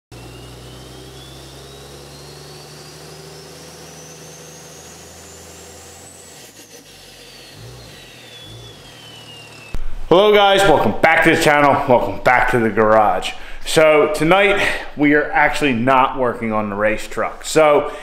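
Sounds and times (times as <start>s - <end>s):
rising and falling whistle: 0.1s - 9.8s
engine drone: 0.1s - 10.1s.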